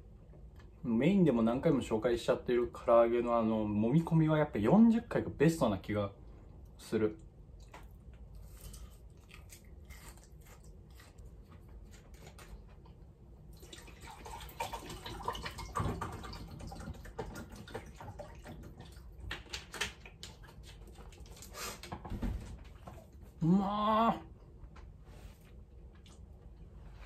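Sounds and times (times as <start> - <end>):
crunchy chewing: 7.6 - 13.0.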